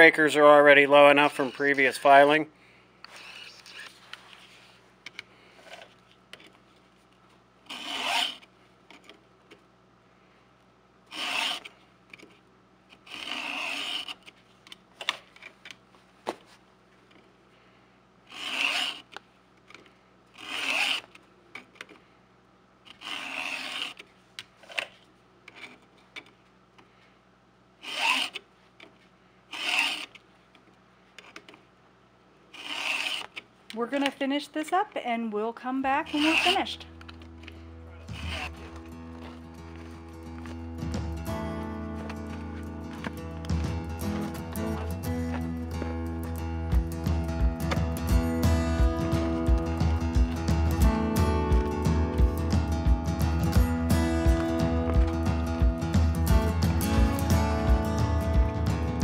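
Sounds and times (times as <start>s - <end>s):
file strokes on chainsaw chain: 1.0s - 2.3s, 7.7s - 8.4s, 11.1s - 11.7s, 13.1s - 14.2s, 18.3s - 19.1s, 20.4s - 21.1s, 22.9s - 24.0s, 27.8s - 28.4s, 29.5s - 30.2s, 32.6s - 33.3s, 36.1s - 36.8s, 38.1s - 39.4s.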